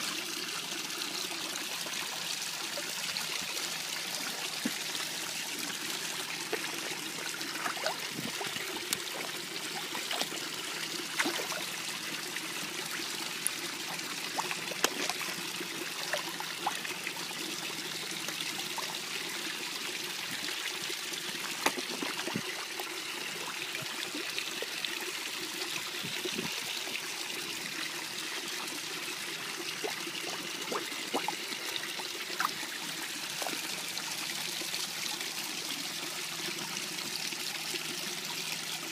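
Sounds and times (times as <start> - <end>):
pond water trickling: 0.0 - 38.9
fish splashing at surface: 6.4 - 10.5, 11.1 - 11.8, 13.9 - 15.3.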